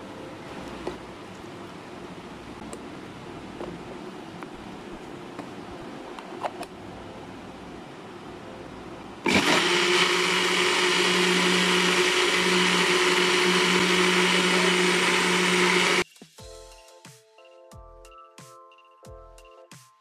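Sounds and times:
electric blender running: 9.2s - 16.0s.

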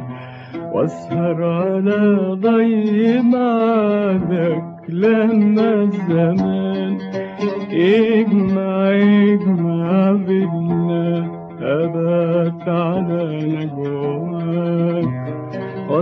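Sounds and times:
man singing melismatic phrases: 0.7s - 15.2s.

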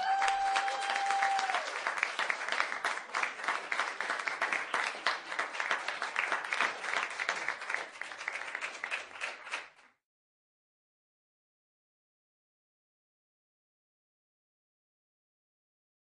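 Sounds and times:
crowd applauding: 0.0s - 9.9s.

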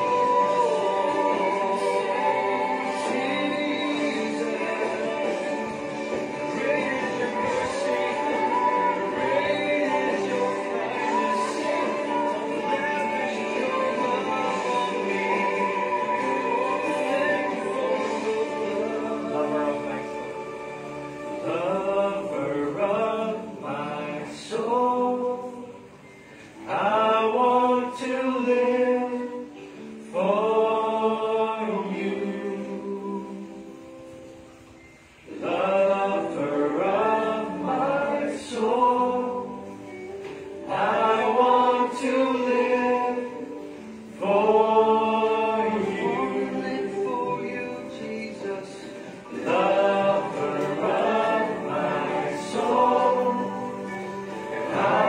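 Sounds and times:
group singing worship song: 0.0s - 55.0s.

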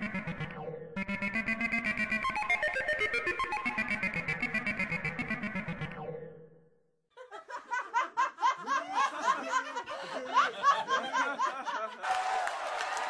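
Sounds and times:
background music: 0.0s - 6.5s.

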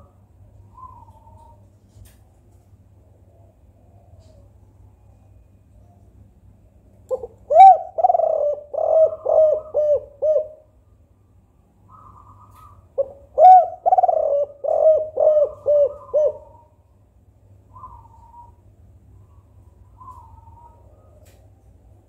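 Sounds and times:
dove cooing: 7.1s - 10.7s, 11.9s - 16.8s.

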